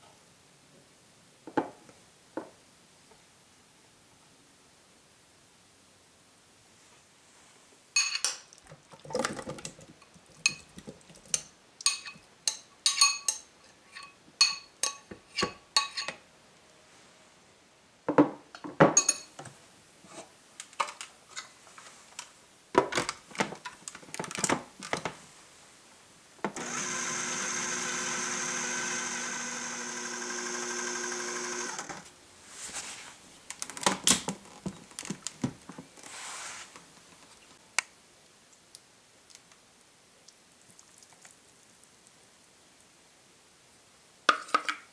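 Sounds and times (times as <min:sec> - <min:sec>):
food processor motor running: 0:26.6 - 0:32.0.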